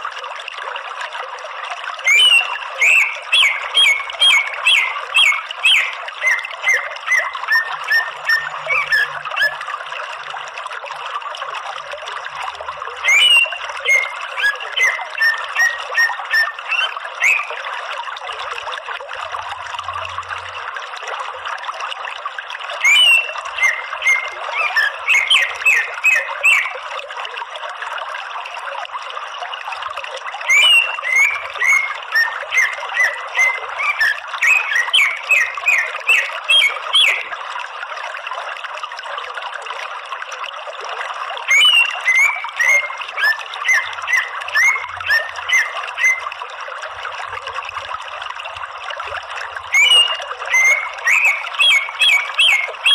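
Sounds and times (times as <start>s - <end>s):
trickling water: 0.0s - 52.9s
bird chirping: 2.1s - 9.6s, 13.0s - 17.5s, 22.8s - 26.7s, 30.5s - 37.2s, 41.5s - 46.2s, 49.7s - 52.9s.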